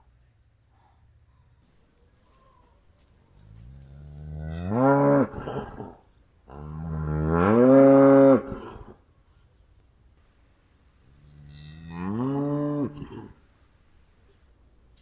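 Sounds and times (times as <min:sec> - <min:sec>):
cow mooing: 0:04.1 - 0:08.9, 0:11.4 - 0:13.3.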